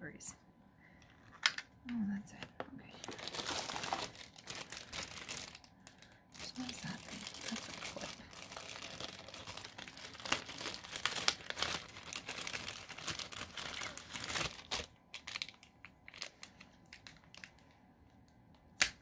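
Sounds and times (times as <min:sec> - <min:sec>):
plastic packaging crinkling: 0:02.8 - 0:17.8.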